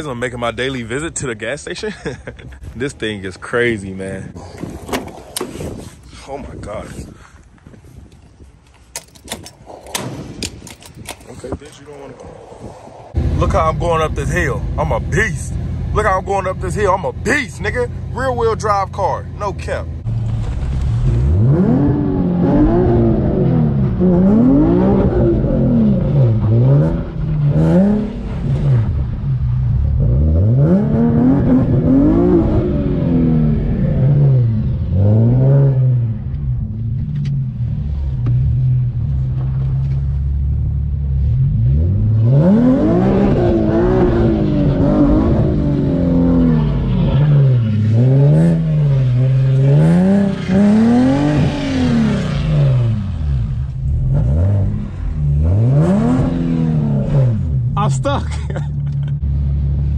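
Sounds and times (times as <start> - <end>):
car engine revving hard: 21.0 - 29.0, 29.9 - 36.3, 41.2 - 57.9.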